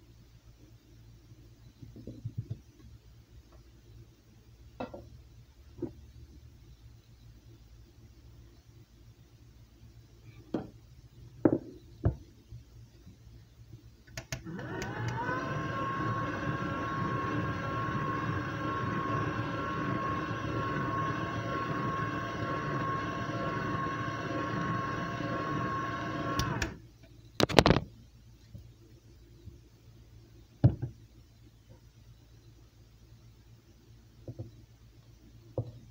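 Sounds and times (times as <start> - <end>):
stand mixer motor whine: 14.4 - 26.8.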